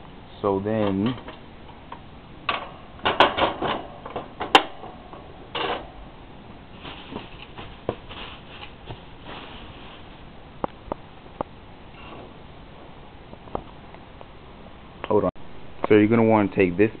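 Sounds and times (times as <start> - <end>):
rustling: 6.7 - 14.4.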